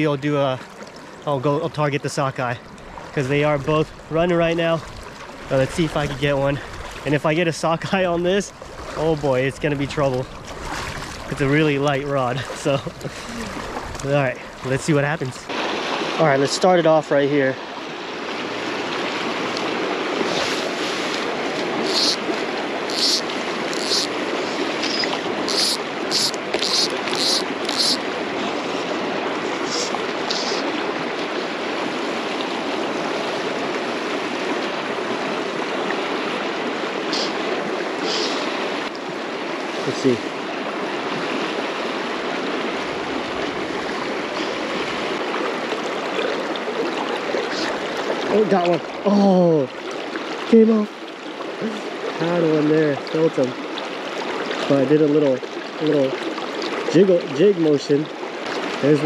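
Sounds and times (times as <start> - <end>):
river rushing: 2.5 - 59.0
fly line swishing: 20.3 - 22.2, 22.9 - 28.0.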